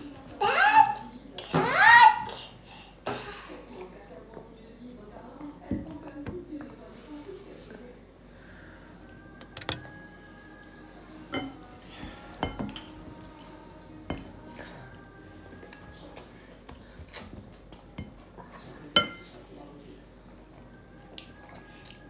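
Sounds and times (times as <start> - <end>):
utensils clinking on glass table: 9.4 - 9.9.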